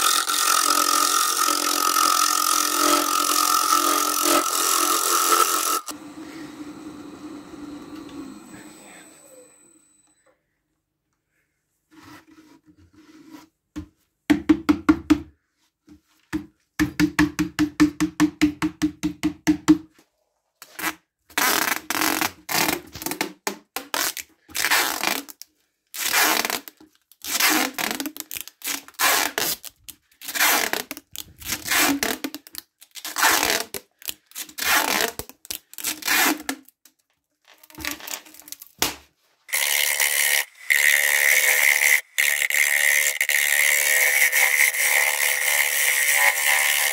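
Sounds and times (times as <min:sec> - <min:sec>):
abrasive strip rubbing wood: 0:00.0 - 0:06.0, 0:26.0 - 0:36.7, 0:39.5 - 0:46.9
lathe tool cutting wood hiss: 0:02.4 - 0:09.5.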